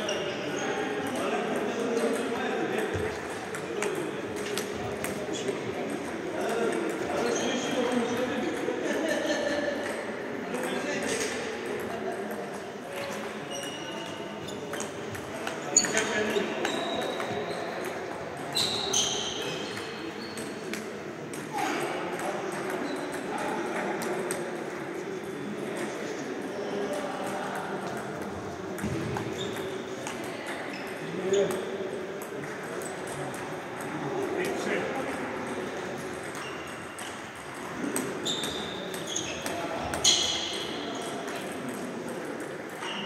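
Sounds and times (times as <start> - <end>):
murmur of sports hall: 0.0 - 43.0
short high squeaks: 18.5 - 20.5, 38.2 - 41.1
table tennis balls clicking: 27.2 - 43.0.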